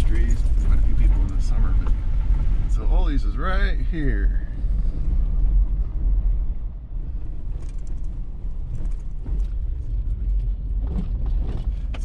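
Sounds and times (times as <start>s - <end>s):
road noise rumble in truck cab: 0.0s - 12.0s
light clicks and rattles: 7.5s - 12.0s.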